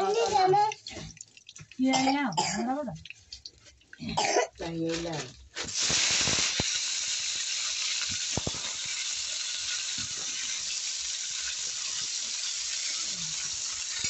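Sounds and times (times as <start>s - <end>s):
vegetables sizzling in hot oil: 5.3s - 14.0s.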